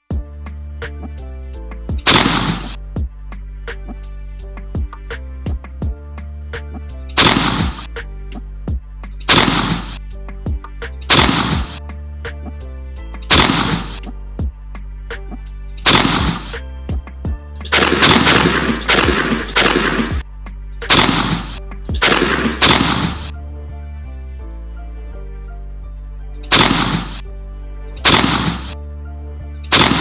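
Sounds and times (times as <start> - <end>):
background music with steady beat: 0.0 - 30.0
shotgun shots: 2.0 - 2.8, 7.2 - 7.9, 9.3 - 10.0, 11.1 - 11.8, 13.3 - 14.0, 15.9 - 16.6, 17.6 - 20.2, 20.9 - 23.3, 26.5 - 27.2, 28.0 - 28.8, 29.7 - 30.0.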